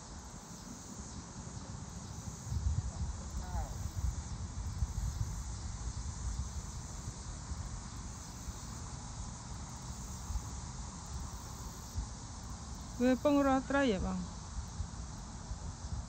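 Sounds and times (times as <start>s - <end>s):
insects chirping: 0.0s - 16.0s
wind rumbling on microphone: 1.0s - 9.7s, 12.0s - 16.0s.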